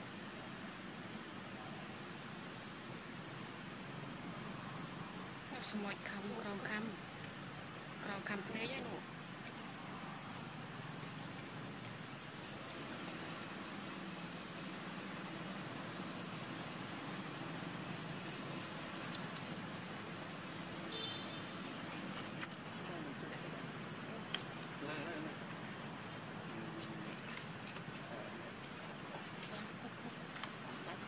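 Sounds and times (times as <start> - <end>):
faint hiss: 0.0 - 31.0
insect trilling: 5.4 - 25.4
sharp chirp: 20.9 - 21.8.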